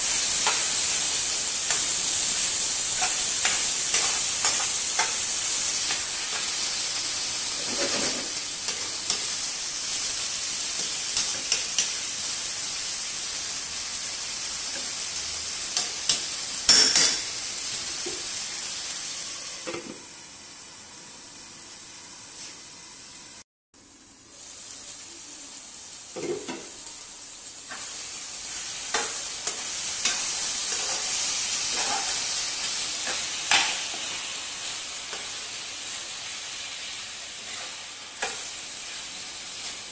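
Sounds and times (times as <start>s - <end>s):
food sizzling in frying pan: 0.0s - 39.9s
spatula scraping pan: 7.4s - 9.3s, 27.7s - 34.0s.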